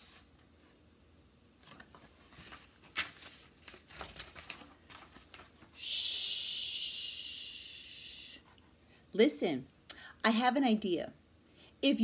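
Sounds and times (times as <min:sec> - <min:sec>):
book pages rustling and turning: 0:01.6 - 0:05.8.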